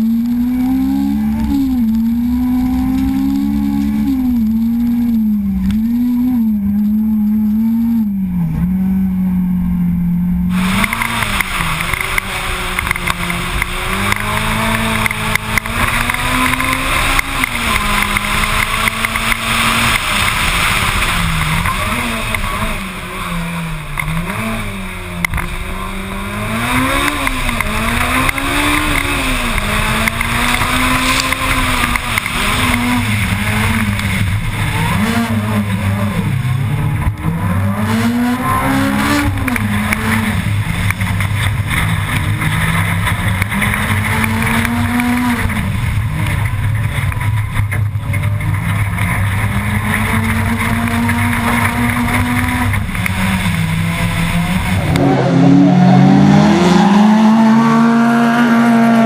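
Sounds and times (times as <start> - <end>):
rally car engine revving: 0.0 - 59.0
tyres on gravel: 10.5 - 57.4.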